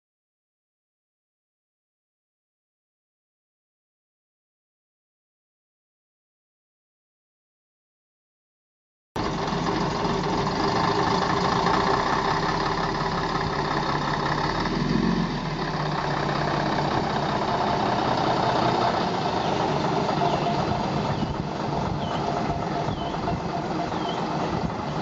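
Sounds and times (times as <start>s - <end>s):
bus diesel engine running: 9.2s - 25.0s.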